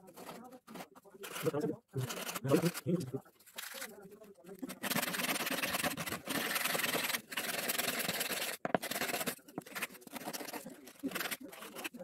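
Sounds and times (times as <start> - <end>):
sandpaper sanding wood: 4.8 - 12.0.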